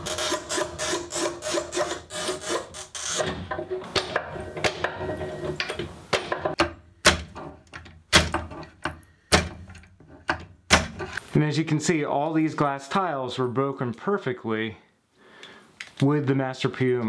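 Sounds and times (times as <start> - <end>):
tile cutter scoring glass: 0.0 - 4.9.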